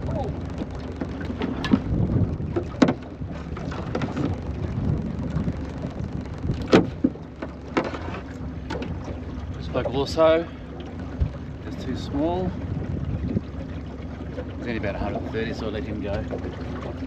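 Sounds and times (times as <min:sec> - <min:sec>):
wind and water noise: 0:00.0 - 0:17.0
crab pot knocking against boat: 0:01.0 - 0:04.4, 0:06.5 - 0:08.1.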